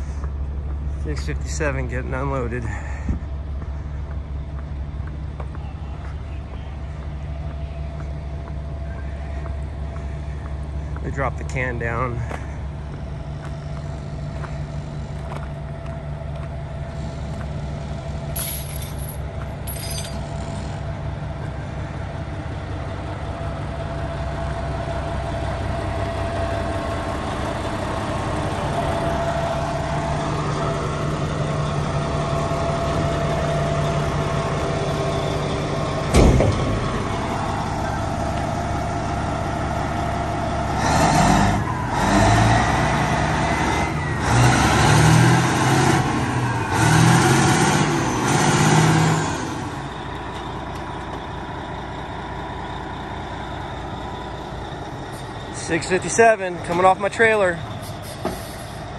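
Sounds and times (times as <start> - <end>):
diesel engine running: 0.0 - 58.9
loud metal clank: 36.1 - 36.9.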